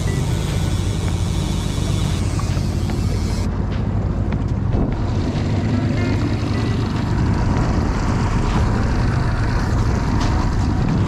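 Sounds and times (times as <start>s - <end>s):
outboard motor running: 0.0s - 3.5s
water and wind hissing: 0.0s - 3.5s.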